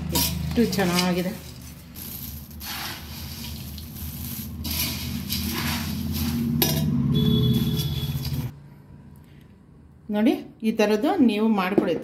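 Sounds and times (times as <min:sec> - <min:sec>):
puffed rice scraping in metal pot: 0:00.0 - 0:08.5.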